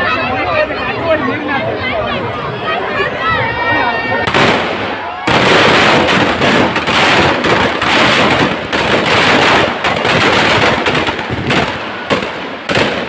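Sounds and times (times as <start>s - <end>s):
firecrackers crackling rapidly: 4.2s - 13.0s.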